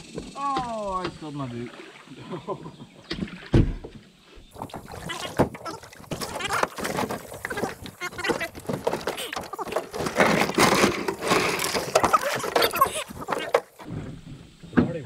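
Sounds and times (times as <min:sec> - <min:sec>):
knocking and clattering in boat: 0:00.0 - 0:01.3, 0:03.0 - 0:15.0
indistinct voices: 0:04.9 - 0:13.9.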